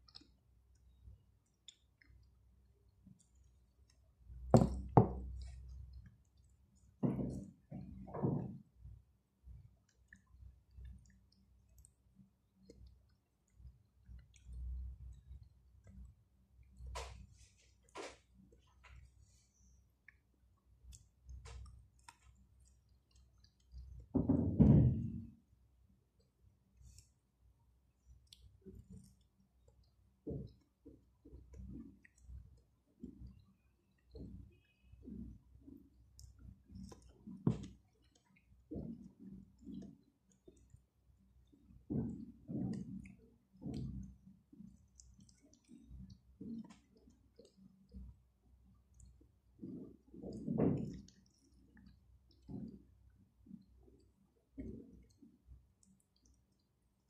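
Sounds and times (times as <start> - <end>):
wet mouth clicks eating: 0.0 - 2.4, 9.8 - 12.0, 28.2 - 29.9, 31.5 - 32.4, 36.2 - 38.7, 42.8 - 48.2.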